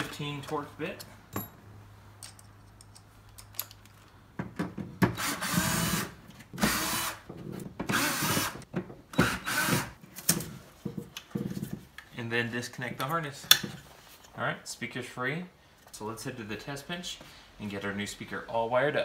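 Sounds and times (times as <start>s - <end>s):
power driver whirring: 5.2s - 7.2s, 7.9s - 8.6s, 9.2s - 9.9s.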